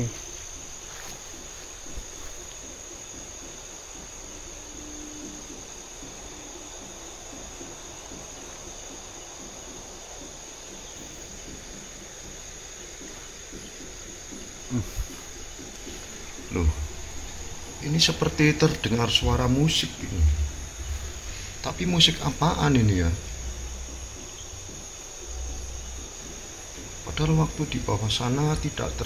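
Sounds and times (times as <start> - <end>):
night insects chorus: 0.0 - 29.0
short thumps: 6.9 - 29.0.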